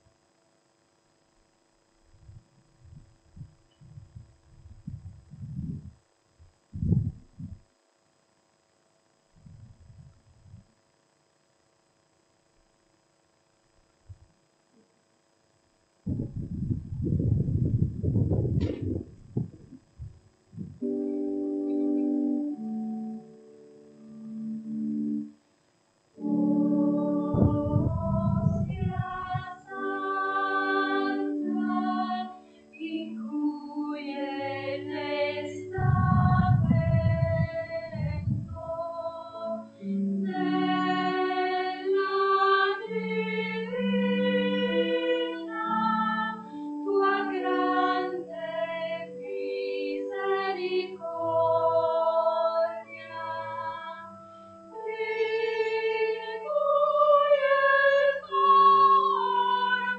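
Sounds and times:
low rumble: 2.2s - 7.6s, 16.1s - 20.8s, 27.3s - 29.6s, 35.7s - 39.0s
organ: 15.6s - 59.9s
voices singing a hymn: 26.2s - 59.9s.

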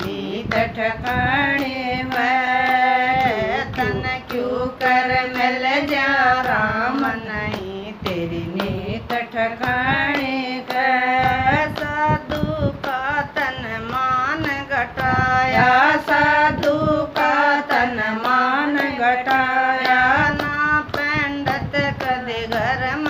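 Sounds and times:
hand claps: 0.0s - 23.0s
women singing devotional song: 0.0s - 23.0s.

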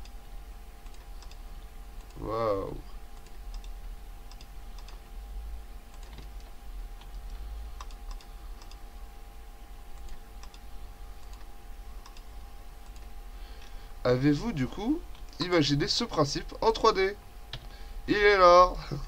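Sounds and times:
steady low hum: 0.0s - 19.0s
mouse clicks: 3.2s - 5.0s.

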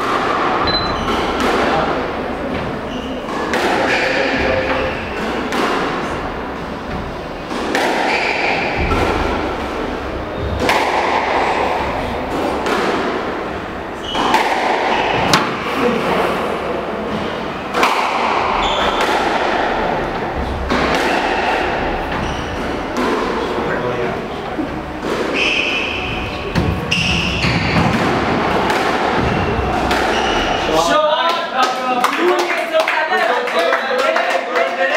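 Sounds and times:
squash ball cracking off rackets: 7.5s - 9.7s, 10.4s - 15.7s, 17.7s - 23.6s, 24.9s - 30.6s
ball thudding against walls: 14.0s - 15.7s.

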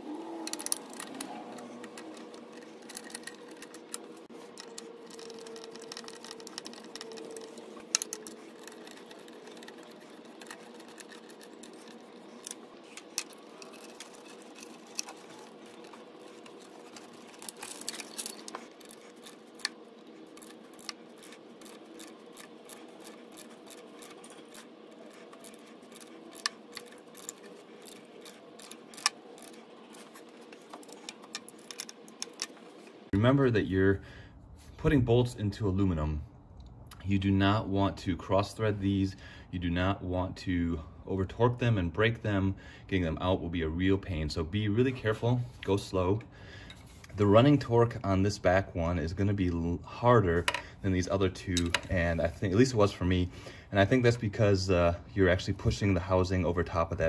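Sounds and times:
faint steady hum: 0.0s - 57.0s
clicks and knocks of tools: 51.6s - 51.9s.

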